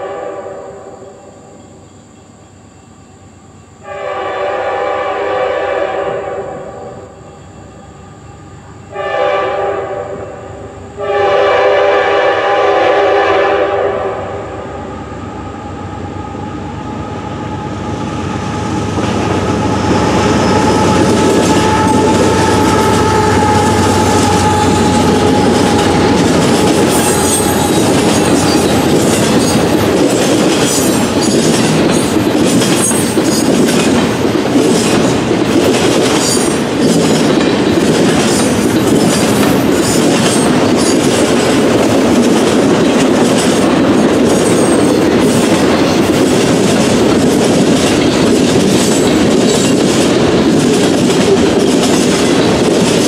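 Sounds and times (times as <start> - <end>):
locomotive air horn blasts: 0.0 - 1.0, 3.8 - 7.0, 8.9 - 14.8, 19.4 - 28.9
train rumble and wheel clatter: 0.0 - 53.0.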